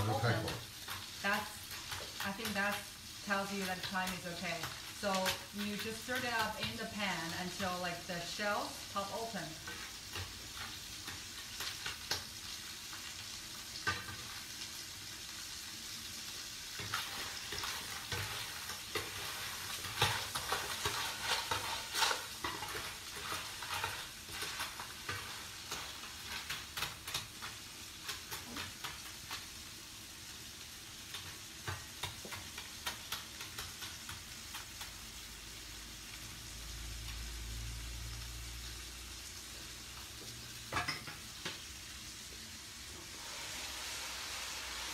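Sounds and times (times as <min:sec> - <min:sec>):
clams sizzling in oil: 0:00.0 - 0:44.9
metal ladle scraping pan: 0:16.8 - 0:26.5.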